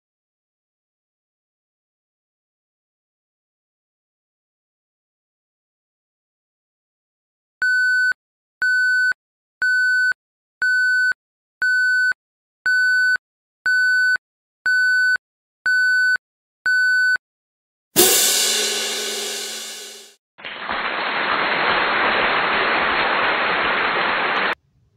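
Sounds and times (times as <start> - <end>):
cymbal crash: 18.0 - 20.2.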